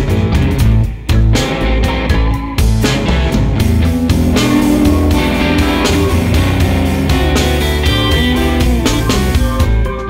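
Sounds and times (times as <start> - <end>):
guitar background music: 3.4 - 9.1.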